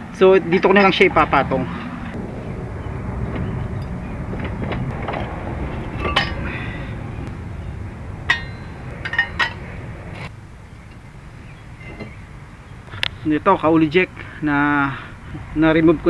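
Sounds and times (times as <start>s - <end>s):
low rumble: 1.1s - 12.8s.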